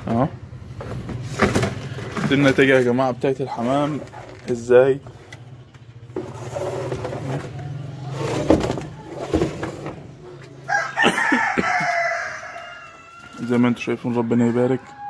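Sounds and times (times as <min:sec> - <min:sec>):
rooster crowing: 0:10.6 - 0:15.0.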